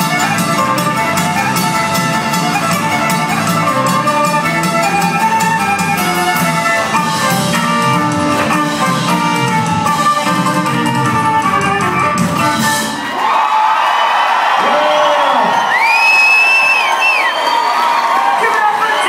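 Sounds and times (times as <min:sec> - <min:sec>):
live country band: 0:00.0 - 0:13.2.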